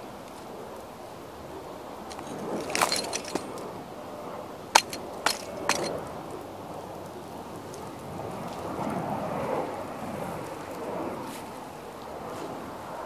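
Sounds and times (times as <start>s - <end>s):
sharp cracks: 4.8s - 6.1s.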